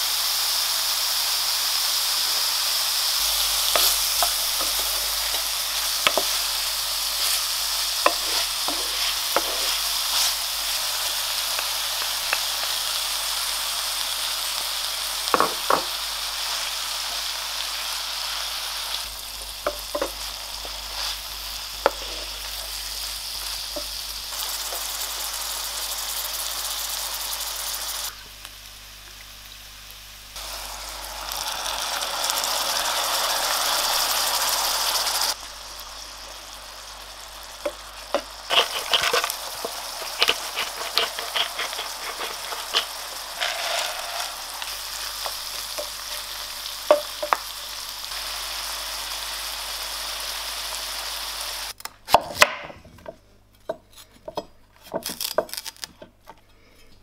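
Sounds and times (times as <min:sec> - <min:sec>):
mushrooms sizzling in a frying pan: 0:00.0 - 0:51.8
wooden spoon scraping a pan: 0:03.7 - 0:11.7, 0:21.8 - 0:22.5, 0:37.6 - 0:47.4.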